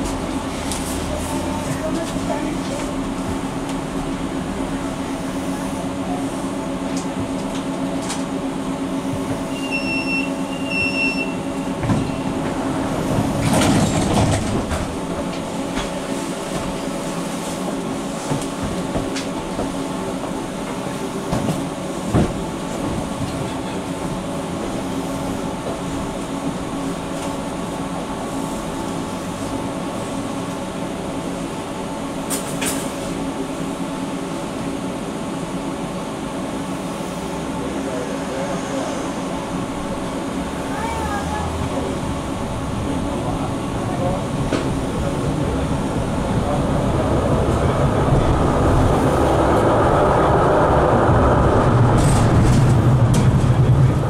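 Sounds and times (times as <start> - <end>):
tram electrical hum: 0.0 - 54.0.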